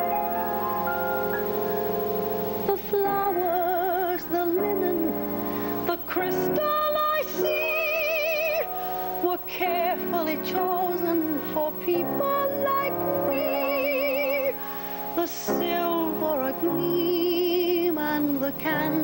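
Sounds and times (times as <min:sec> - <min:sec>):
piano accompaniment: 0:00.0 - 0:07.5
woman singing: 0:02.6 - 0:19.0.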